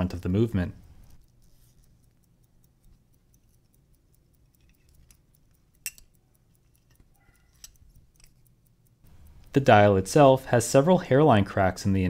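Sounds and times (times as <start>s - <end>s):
small metal and plastic clicks: 0.8s - 9.6s.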